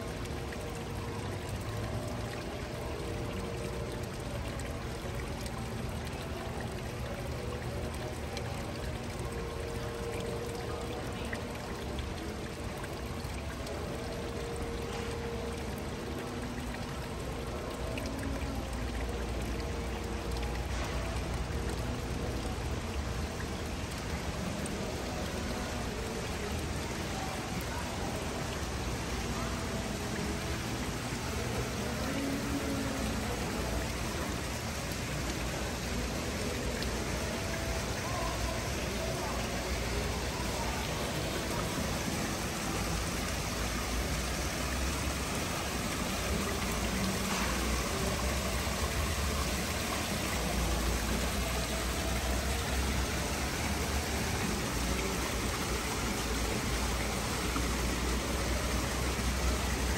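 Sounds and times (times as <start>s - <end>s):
pouring water rushing: 0.0s - 59.9s.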